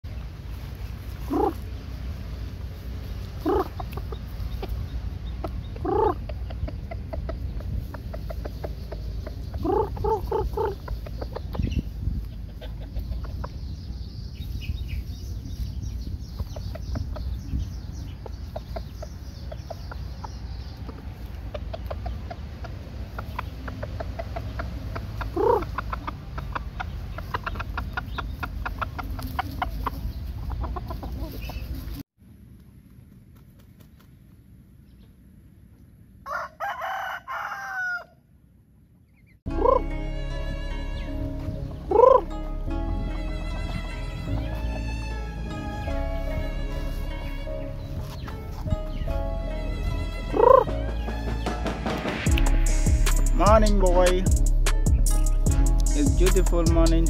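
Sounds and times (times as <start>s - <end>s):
rooster clucking: 1.1s - 1.7s, 3.1s - 13.7s, 16.3s - 32.0s, 39.5s - 40.0s, 41.5s - 42.4s, 50.3s - 52.2s
steady low rumble: 39.5s - 57.0s.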